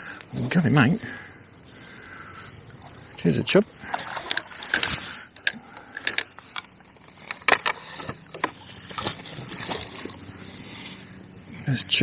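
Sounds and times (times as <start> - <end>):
landing net entering water: 2.8 - 10.3.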